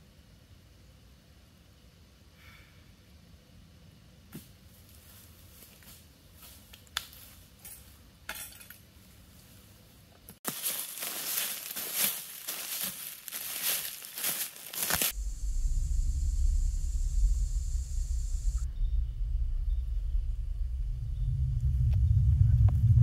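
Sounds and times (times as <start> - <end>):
footsteps crunching dry leaves: 10.4 - 15.2.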